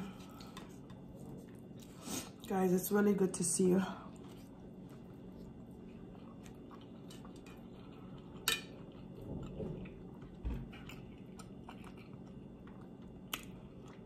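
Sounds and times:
person chewing: 4.1 - 14.0.

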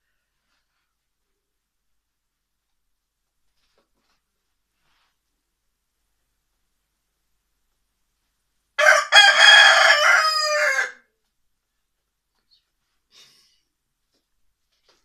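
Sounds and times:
rooster crowing: 8.8 - 11.1.

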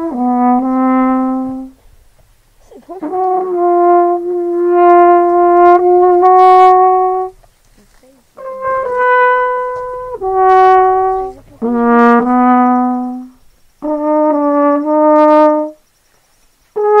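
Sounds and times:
brass instrument slow melody: 0.0 - 2.2, 2.9 - 7.4, 8.4 - 15.8, 16.7 - 17.0.

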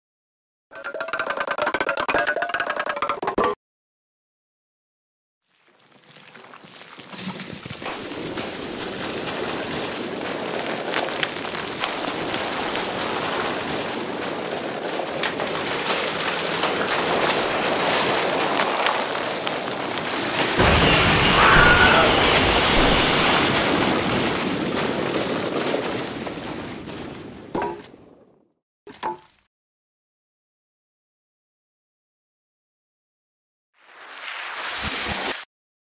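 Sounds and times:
wooden planks clattering: 7.9 - 20.8, 23.1 - 28.0.

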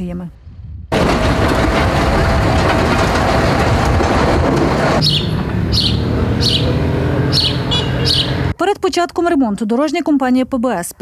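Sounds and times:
diesel engine clattering: 0.9 - 8.6
engine humming: 0.9 - 8.6
small bird chirping: 5.0 - 8.5.

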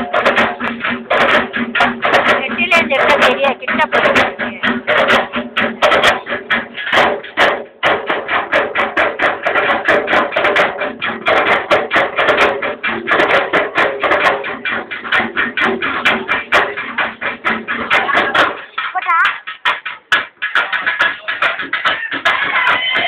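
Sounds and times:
drum ensemble playing fast: 0.0 - 23.0.

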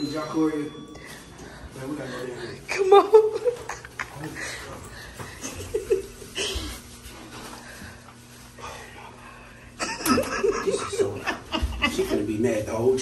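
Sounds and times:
people talking: 1.8 - 5.0, 9.9 - 13.0
people laughing: 2.5 - 6.8, 9.8 - 12.8.

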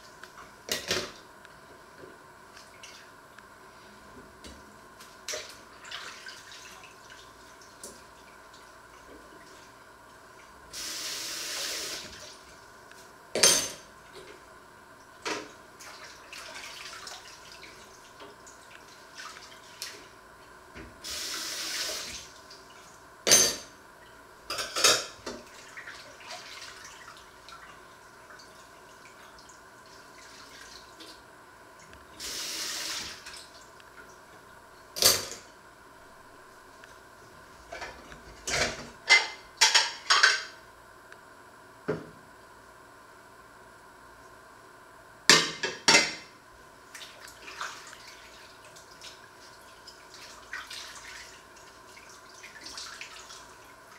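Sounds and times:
tap water running: 10.4 - 12.6, 20.8 - 22.8, 31.8 - 34.5
dishes clinking: 24.5 - 25.2, 38.5 - 40.5.

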